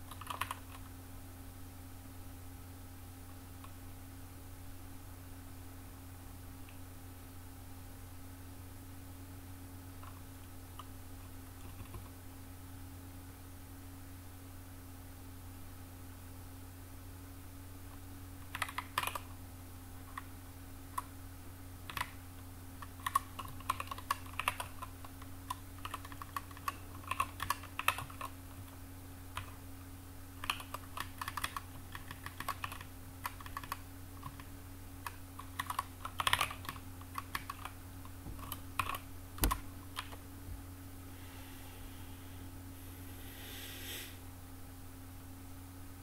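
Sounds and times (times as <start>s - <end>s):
typing on keyboard: 0.0s - 0.9s, 11.6s - 12.1s, 18.4s - 19.3s, 21.9s - 22.2s, 22.8s - 28.7s, 30.4s - 37.8s, 38.4s - 40.2s
steady low hum: 0.0s - 46.0s.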